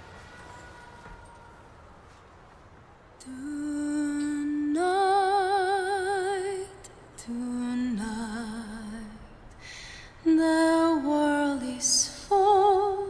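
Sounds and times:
woman singing with vibrato: 3.2 - 9.4, 10.2 - 13.0.

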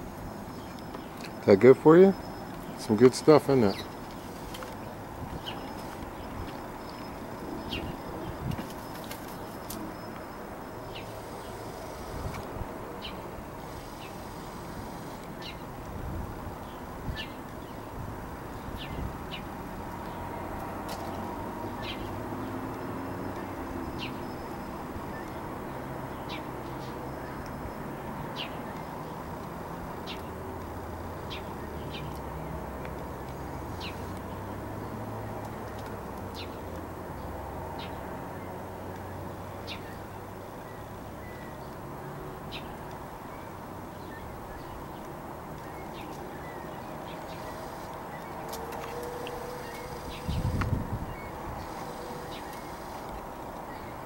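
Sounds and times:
steady outdoor hiss: 0.0 - 54.0
bird chirping: 0.5 - 12.4, 42.5 - 53.0.

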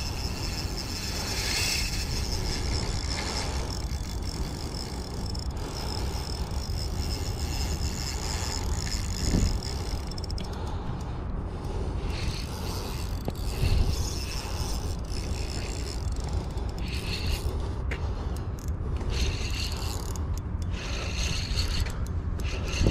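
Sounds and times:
fishing reel drag buzzing: 0.0 - 10.8, 11.5 - 22.9
wind rumble on microphone: 0.0 - 22.9.

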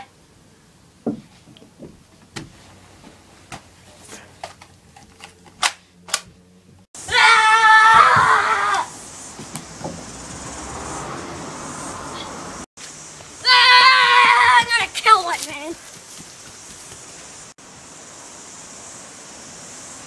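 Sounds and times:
outdoor background hiss: 0.0 - 20.0
child yelling: 7.1 - 8.9, 13.4 - 15.8.

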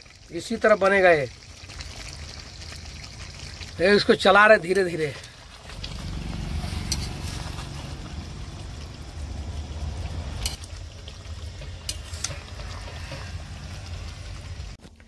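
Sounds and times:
gravy bubbling: 0.0 - 15.0
low rumble: 5.7 - 11.5.

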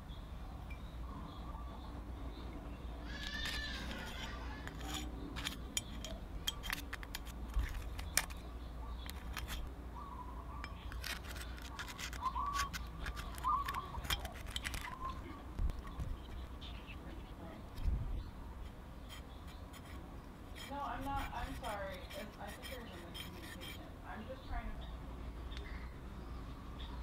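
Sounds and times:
screwdriver tapping and scraping metal: 3.2 - 9.7, 10.6 - 16.6, 18.6 - 23.9.

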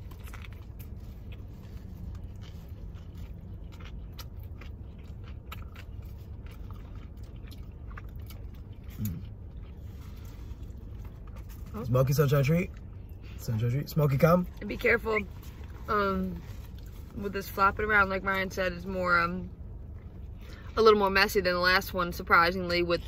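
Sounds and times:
chewing sandwich: 0.0 - 17.9
steady low hum: 0.0 - 23.0.

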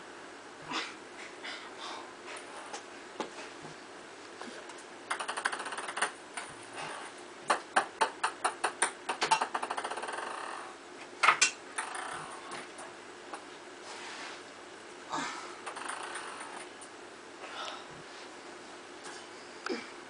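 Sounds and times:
ping pong ball bouncing: 5.1 - 6.5, 7.5 - 10.4.

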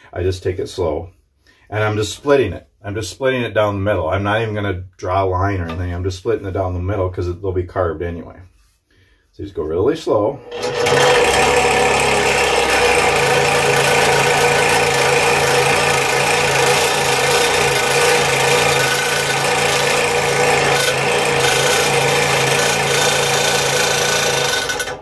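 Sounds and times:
scroll saw cutting wood: 10.4 - 25.0.

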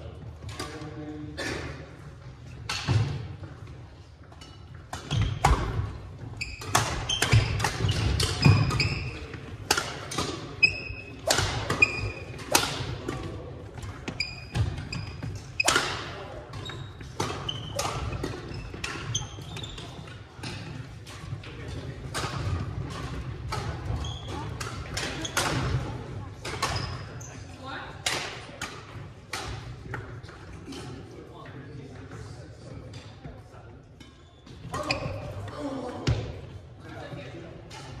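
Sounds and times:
sneaker squeaks: 4.4 - 9.3, 10.2 - 12.9, 13.8 - 20.8, 23.6 - 25.8, 26.5 - 27.5, 34.0 - 35.7
rackets hitting shuttlecock: 4.4 - 27.0.

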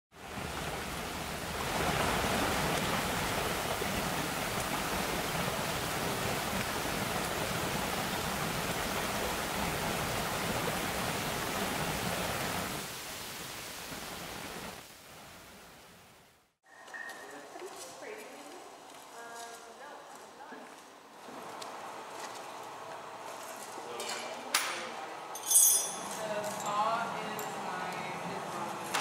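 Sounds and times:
creek water rushing: 0.1 - 16.5, 20.9 - 25.2, 26.0 - 29.0.

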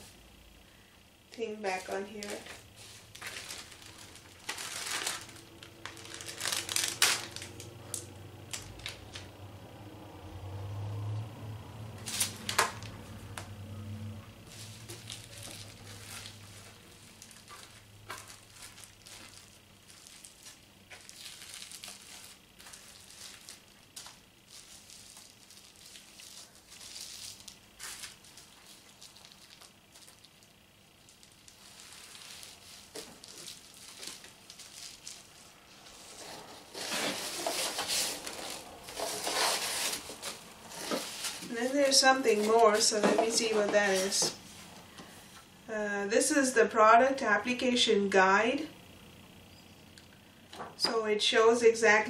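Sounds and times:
plastic packaging crinkling: 1.6 - 9.3, 14.4 - 44.6
hands rustling packing peanuts: 1.8 - 7.7, 14.4 - 30.4, 31.0 - 44.5.

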